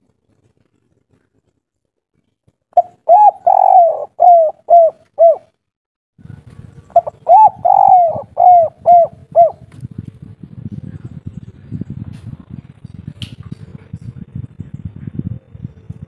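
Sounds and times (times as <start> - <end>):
dove cooing: 2.8 - 5.5, 6.9 - 9.7.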